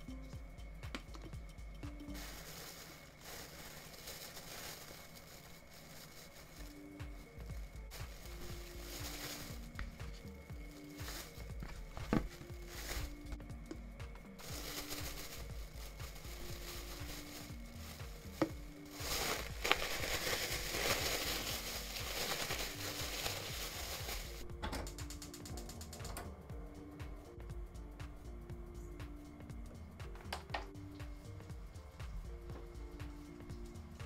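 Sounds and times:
soft background music: 0.0s - 34.0s
plastic bag rustling: 2.0s - 13.4s, 14.3s - 24.4s.

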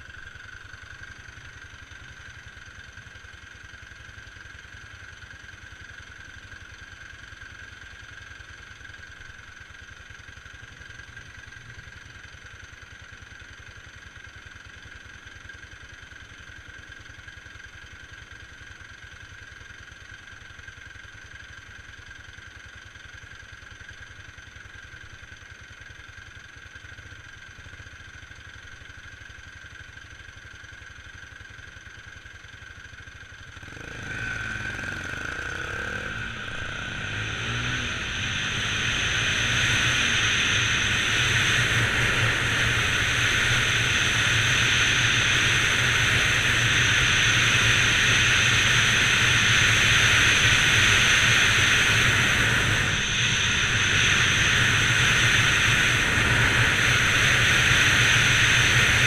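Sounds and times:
motorcycle engine idling: 0.0s - 59.0s
motorcycle accelerating: 33.1s - 59.0s.

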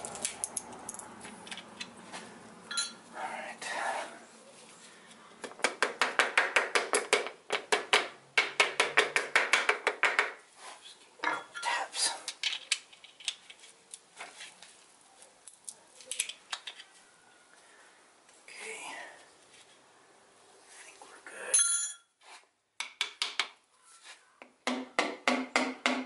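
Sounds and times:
metal clicks and clinks: 0.0s - 1.9s, 2.7s - 3.0s.

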